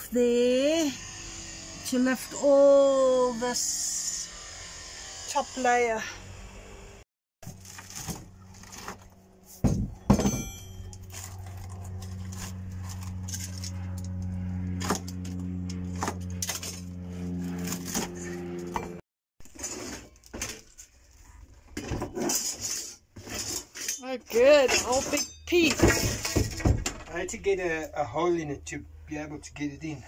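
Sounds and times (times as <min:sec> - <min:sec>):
broken chipboard crunching: 0:07.4 - 0:09.2.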